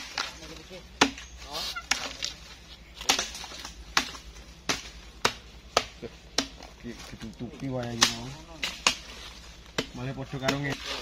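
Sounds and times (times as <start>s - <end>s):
machete chopping wood: 1.0s - 2.4s, 3.0s - 6.7s, 7.8s - 11.0s.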